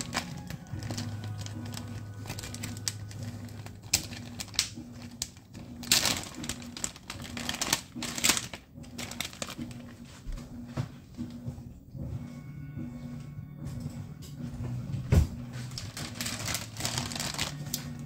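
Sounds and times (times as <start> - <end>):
plastic bag crinkling: 0.0 - 10.0, 15.6 - 18.0.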